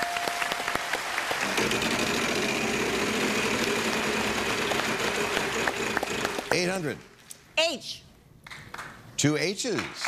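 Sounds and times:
audience applause: 0:00.0 - 0:06.8.

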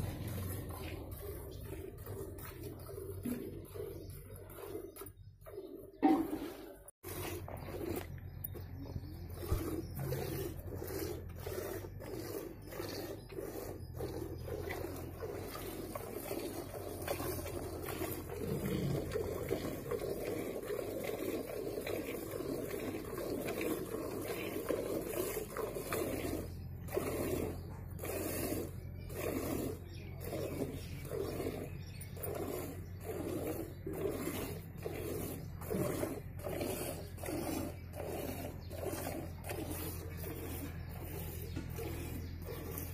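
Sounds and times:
milk squirting into metal pail: 0:09.4 - 0:42.9.

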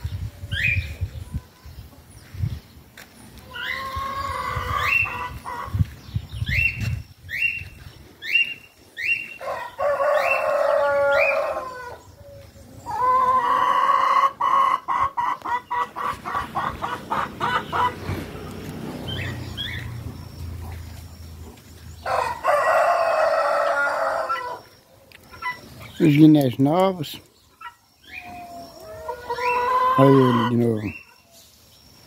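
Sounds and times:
chickens clucking: 0:03.3 - 0:06.0, 0:09.2 - 0:31.2
rooster crowing: 0:09.4 - 0:12.1, 0:22.0 - 0:24.6.

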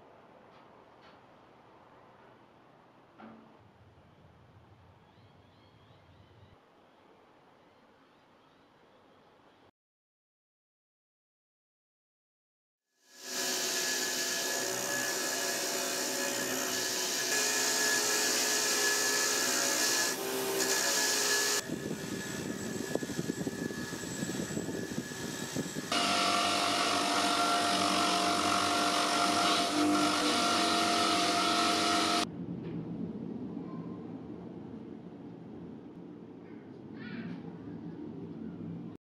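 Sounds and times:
bench grinder motor whine: 0:13.2 - 0:32.3
grinding wheel hissing on metal: 0:19.2 - 0:32.3.

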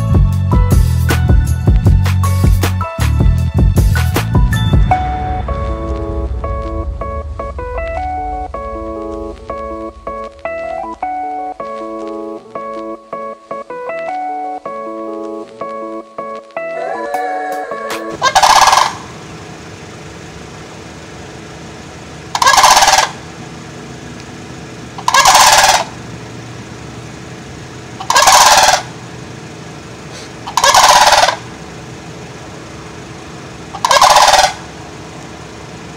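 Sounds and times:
low background hum: 0:04.7 - 0:13.5
cranes calling: 0:16.7 - 0:19.3, 0:22.2 - 0:23.4, 0:24.9 - 0:26.2, 0:27.8 - 0:29.2, 0:30.0 - 0:31.6, 0:33.6 - 0:35.2.

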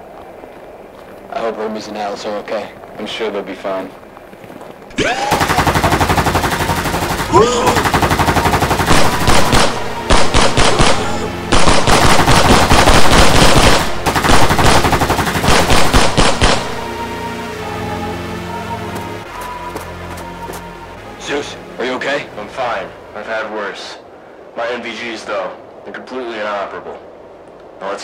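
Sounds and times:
automatic rifle fire: 0:05.1 - 0:16.9.

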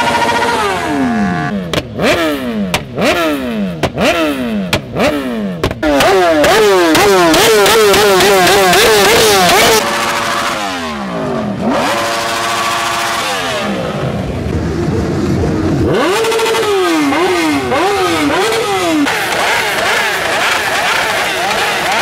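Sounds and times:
motorcycle engines revving: 0:00.0 - 0:22.0.

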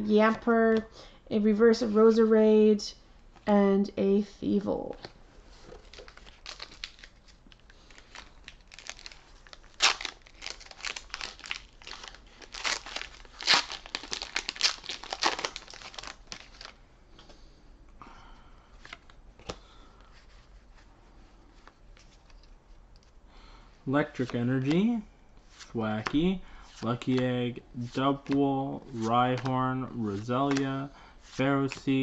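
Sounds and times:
foil wrapper crinkling and tearing: 0:05.8 - 0:16.8.

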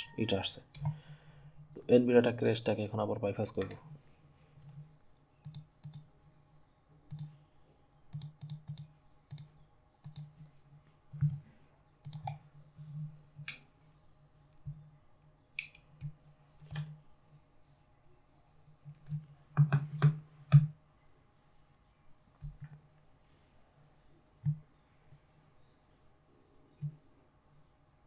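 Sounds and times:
faint steady hum: 0:00.0 - 0:28.0
mouse clicks: 0:05.4 - 0:06.1, 0:07.1 - 0:07.4, 0:08.1 - 0:10.4, 0:12.0 - 0:12.4.

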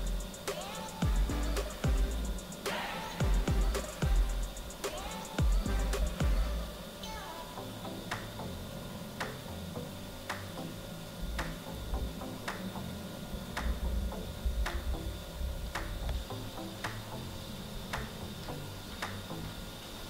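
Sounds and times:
faint low rumble: 0:00.0 - 0:00.4, 0:07.6 - 0:19.8.

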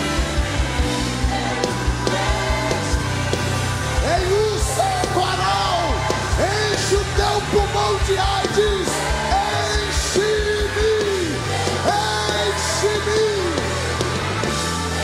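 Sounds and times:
backing singers: 0:00.0 - 0:15.0
band bass and drums: 0:00.0 - 0:15.0
man singing into microphone: 0:04.0 - 0:13.6.

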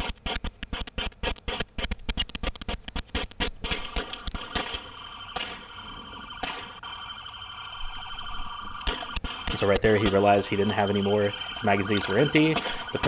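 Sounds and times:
steady alarm tone: 0:03.8 - 0:13.0.

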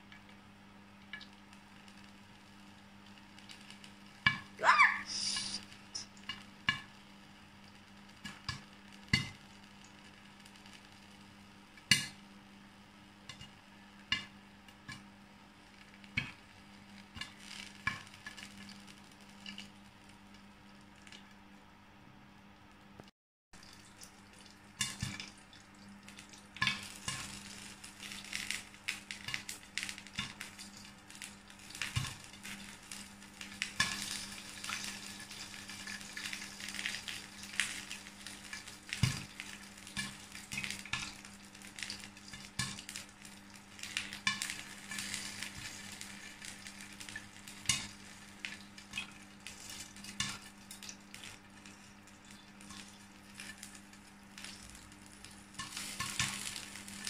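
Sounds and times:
oil sizzling: 0:00.1 - 0:21.5, 0:23.6 - 0:57.0
popcorn popping: 0:07.8 - 0:10.9, 0:11.6 - 0:12.3, 0:26.2 - 0:57.0.

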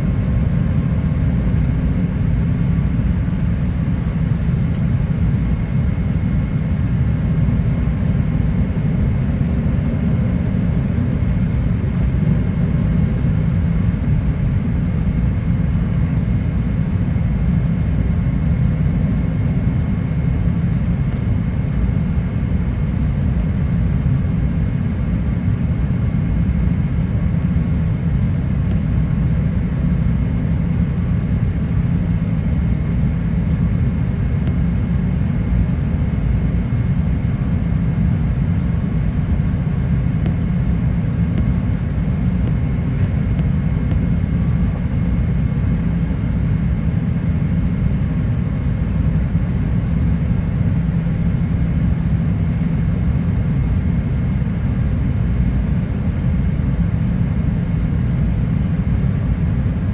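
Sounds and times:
airplane cabin rumble: 0:00.0 - 0:59.9.

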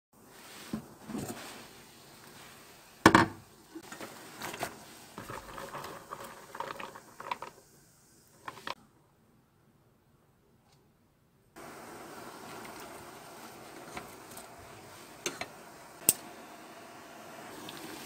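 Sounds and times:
water boiling in pot: 0:00.2 - 0:08.8, 0:11.6 - 0:18.0
sprouts rustling and splashing: 0:11.6 - 0:16.1.

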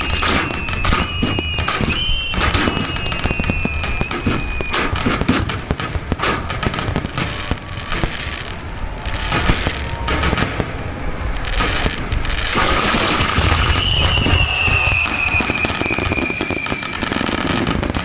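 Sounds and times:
high whistle: 0:00.0 - 0:04.9, 0:13.5 - 0:17.0
fireworks crackling: 0:00.0 - 0:18.0
fireworks launches and bursts: 0:00.0 - 0:18.0
low rumble: 0:07.4 - 0:16.4.

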